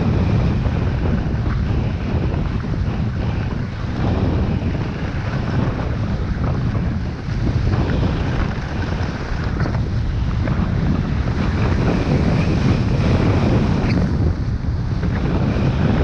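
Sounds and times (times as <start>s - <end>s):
wind rushing over microphone: 0.0s - 16.0s
skis sliding on snow: 1.4s - 14.0s.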